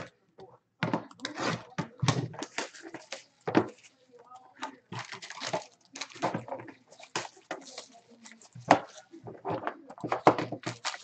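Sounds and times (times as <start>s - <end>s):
foil and card packaging crinkling: 2.2s - 9.2s, 10.0s - 11.0s.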